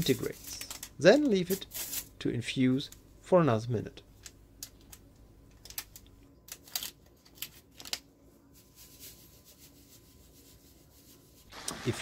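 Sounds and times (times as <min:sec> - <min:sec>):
paper sachet rustling and tearing: 0:00.0 - 0:02.1, 0:05.7 - 0:10.7.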